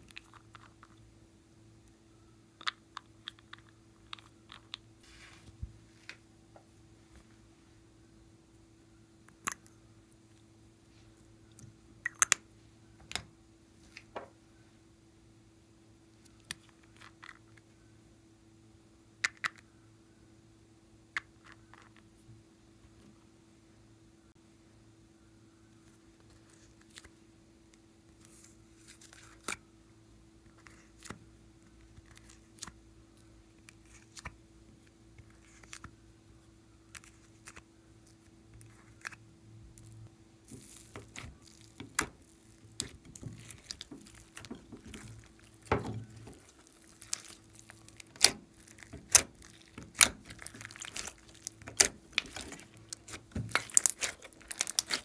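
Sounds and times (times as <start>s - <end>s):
faint steady hum: 0.0s - 55.0s
slime squeezed and kneaded: 39.8s - 55.0s.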